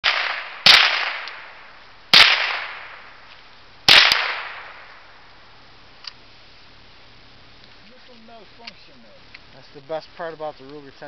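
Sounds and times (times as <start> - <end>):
rifle shots with echo: 0.0 - 3.1, 3.9 - 5.0
light click: 8.6 - 9.4.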